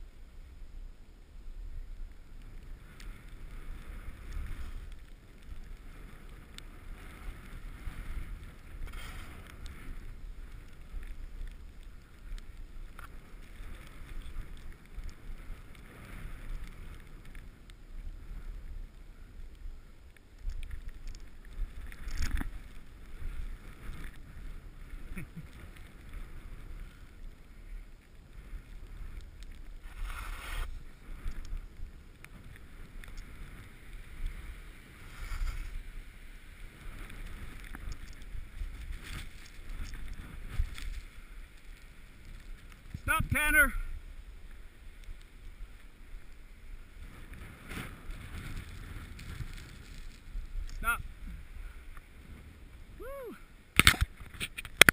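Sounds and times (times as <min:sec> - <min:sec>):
wind rumbling on microphone: 0:00.0 - 0:54.9
skis scraping over snow: 0:00.2 - 0:54.9.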